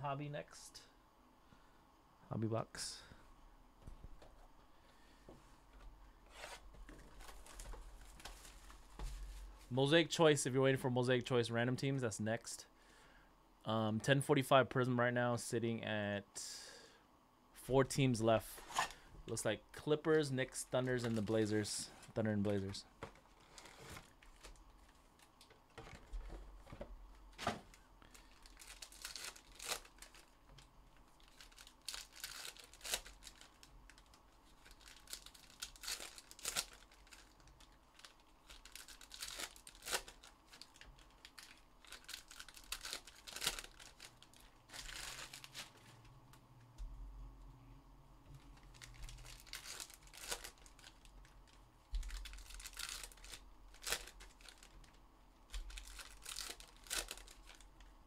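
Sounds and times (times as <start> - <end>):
card pack wrappers crinkling: 20.7 - 26.3, 27.4 - 46.0, 48.4 - 57.9
wrappers ripping: 28.1 - 30.4, 31.1 - 45.8, 48.6 - 57.7.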